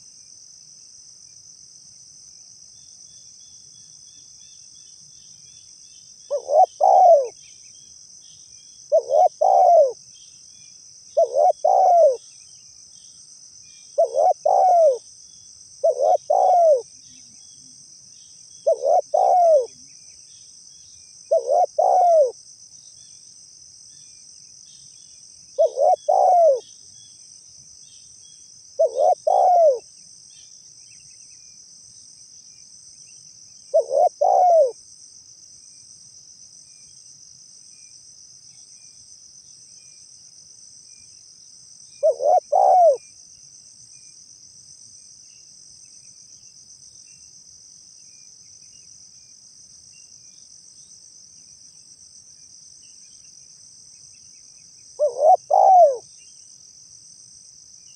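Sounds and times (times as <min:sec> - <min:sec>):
high insect drone: 0:00.0 - 0:57.9
dove cooing: 0:06.3 - 0:07.4, 0:08.9 - 0:10.0, 0:11.2 - 0:12.2, 0:14.0 - 0:15.0, 0:15.8 - 0:16.9, 0:18.6 - 0:19.8, 0:21.3 - 0:22.4, 0:25.6 - 0:26.6, 0:28.8 - 0:29.8, 0:33.8 - 0:34.8, 0:42.0 - 0:43.0, 0:55.0 - 0:56.0.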